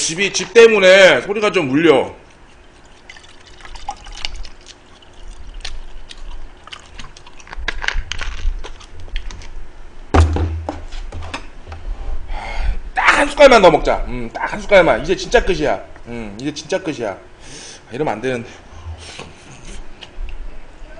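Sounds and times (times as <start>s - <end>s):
soda pouring and fizzing: 3.0s - 6.7s
deep thump on table: 10.1s - 10.8s.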